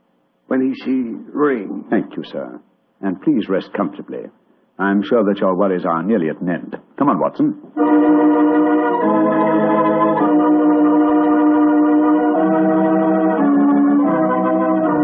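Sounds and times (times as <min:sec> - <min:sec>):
organ held chords: 0:07.6 - 0:15.0.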